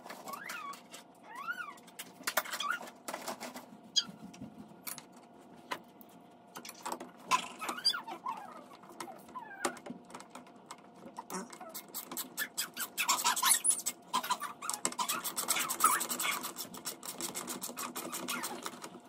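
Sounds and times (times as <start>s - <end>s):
screwdriver clicking and scratching: 11.8s - 19.0s.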